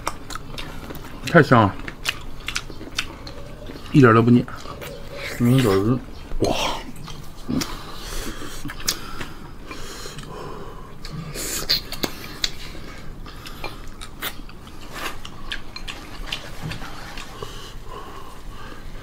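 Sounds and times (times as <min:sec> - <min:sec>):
person chewing and sucking: 0:00.0 - 0:10.3, 0:11.0 - 0:17.8
lip smacks: 0:11.0 - 0:12.6.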